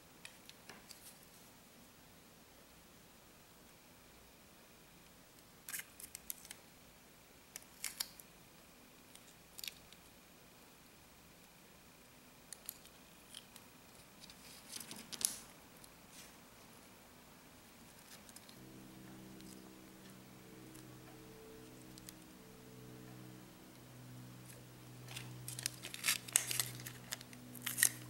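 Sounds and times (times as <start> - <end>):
wire clicking and rustling: 25.1 - 28.0.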